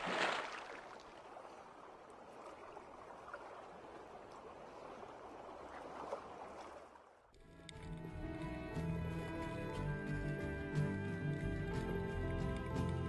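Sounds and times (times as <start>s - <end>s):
water bubbling and fizzing: 0.0s - 7.0s.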